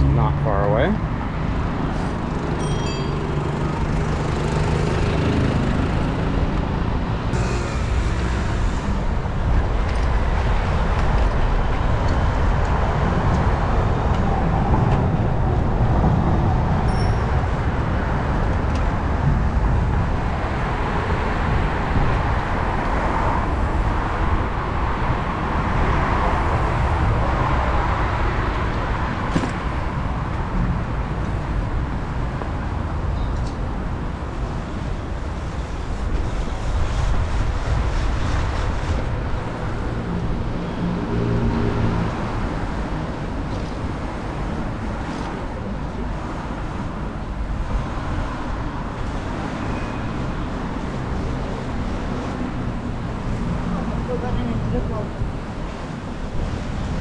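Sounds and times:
city traffic noise: 0.0 - 57.0
low hum: 7.3 - 10.2.

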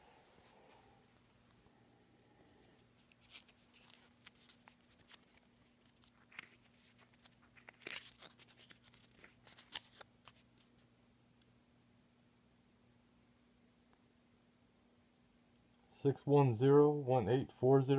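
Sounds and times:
paper ticket crinkling: 2.7 - 10.9.

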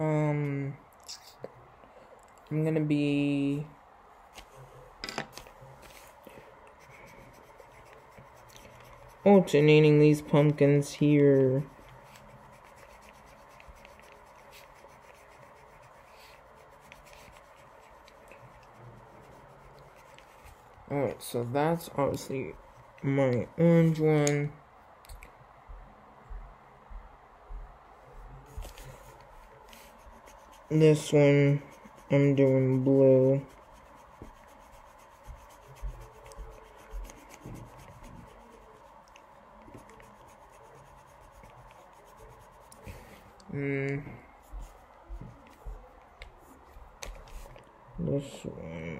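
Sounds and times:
faint steady hum: 0.0 - 48.9
pen scratching on paper: 5.4 - 20.7, 28.5 - 43.2.

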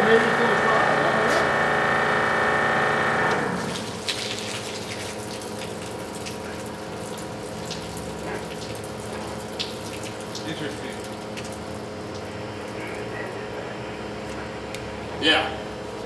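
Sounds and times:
pump whining: 0.0 - 16.0
water running: 3.6 - 13.2.

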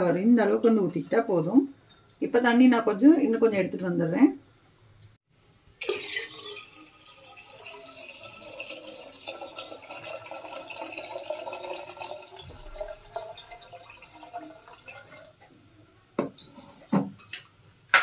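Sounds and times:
water pouring into a vessel: 5.8 - 15.4.

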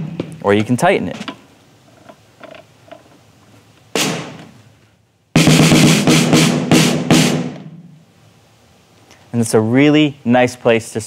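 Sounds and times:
snare drum ringing out: 4.0 - 4.4, 5.4 - 7.8.

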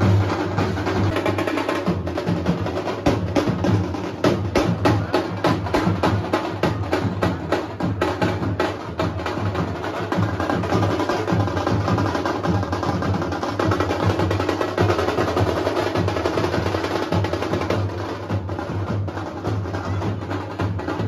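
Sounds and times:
drum band playing: 0.0 - 21.0.

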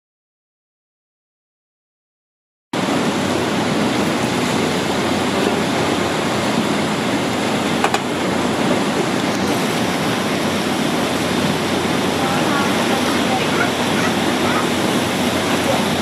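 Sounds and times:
rushing river water: 2.8 - 16.0
waterfall roar: 2.8 - 16.0.

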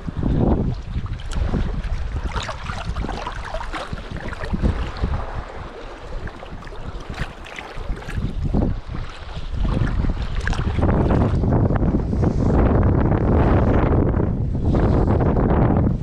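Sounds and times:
wind buffeting the microphone: 0.0 - 16.0
short water splashes: 0.1 - 11.7.

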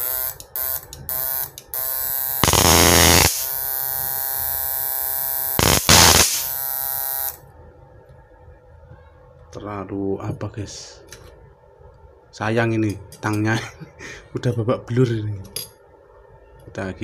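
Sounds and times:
high-voltage inverter buzzing: 0.0 - 7.4
electric arcing bursts: 2.4 - 3.8, 5.5 - 7.3.

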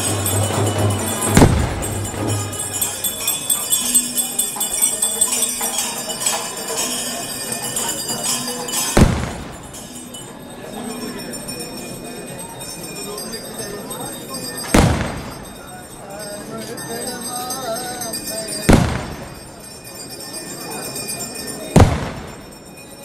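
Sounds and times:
crowd noise: 0.0 - 23.0
small bells jingling: 0.0 - 23.0
loud sharp bangs: 1.2 - 2.6, 9.0 - 9.9, 14.8 - 15.5, 18.7 - 19.5, 21.8 - 22.5.

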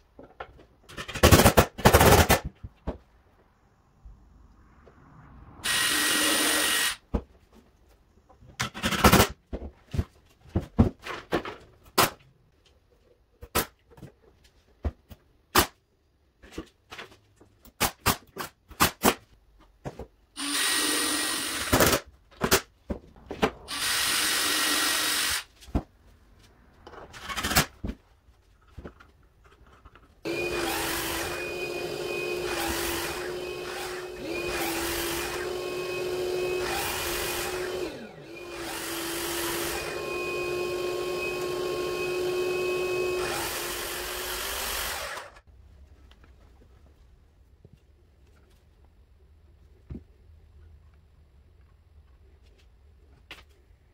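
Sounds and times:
miter saw cutting wood: 5.6 - 7.0, 23.7 - 25.5, 30.2 - 45.4
shop vacuum running: 5.6 - 7.0, 30.2 - 45.4.

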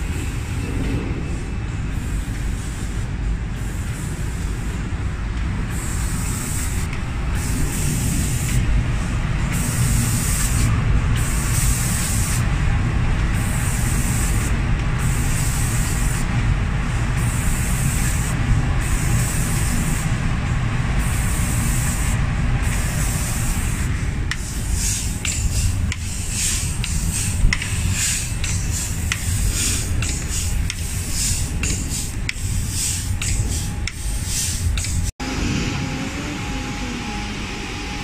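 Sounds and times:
machine low rumble: 0.0 - 38.0
spray guns hissing: 1.9 - 4.8, 5.7 - 8.7, 9.4 - 12.5, 13.3 - 20.2, 21.0 - 35.1.

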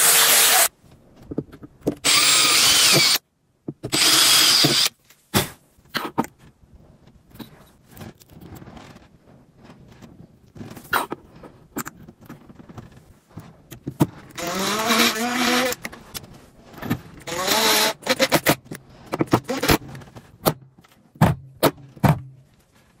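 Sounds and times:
electric screwdriver whining: 2.0 - 3.2, 3.9 - 4.9, 14.4 - 15.8, 17.2 - 18.5.

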